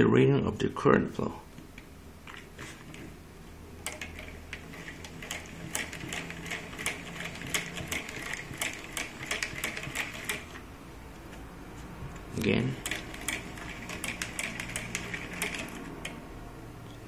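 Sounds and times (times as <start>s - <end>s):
hand-cranked generator clicking: 3.8s - 10.6s, 12.7s - 16.2s.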